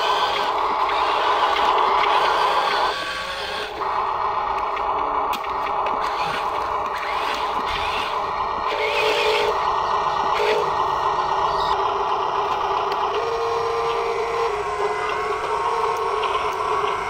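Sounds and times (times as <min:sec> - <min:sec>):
small electric motor whining: 0:00.0 - 0:17.0.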